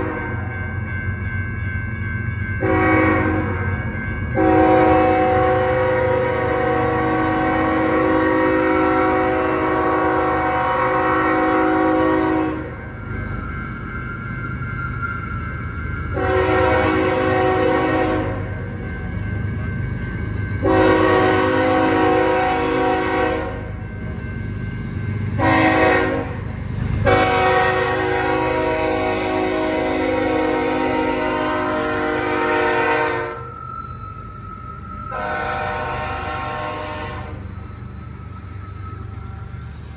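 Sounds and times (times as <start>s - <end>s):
low rumble of train: 0.0s - 39.9s
locomotive air horn chord: 2.6s - 3.6s, 4.4s - 12.7s, 16.1s - 18.4s, 20.6s - 23.6s, 25.3s - 26.4s, 27.0s - 33.6s, 35.1s - 37.4s.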